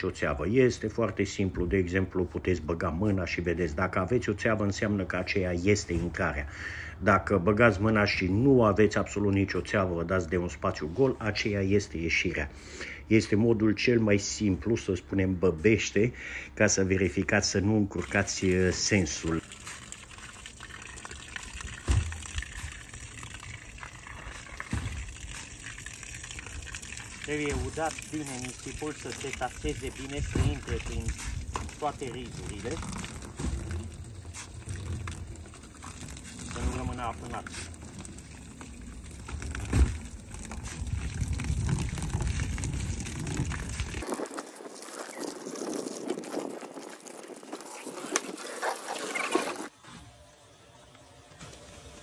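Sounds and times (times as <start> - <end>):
water gushing onto sand: 18.0 - 49.7.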